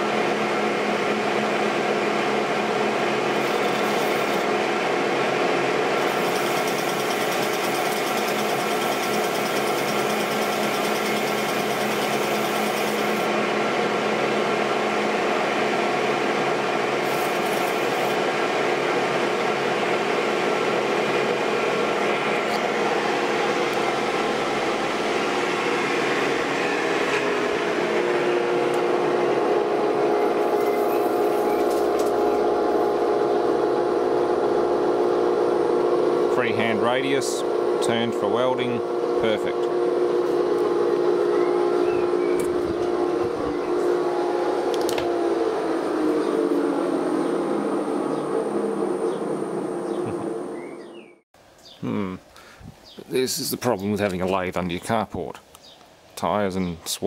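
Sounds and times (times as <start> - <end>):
metal lathe whining: 3.2 - 4.6, 6.0 - 13.4, 17.0 - 18.3.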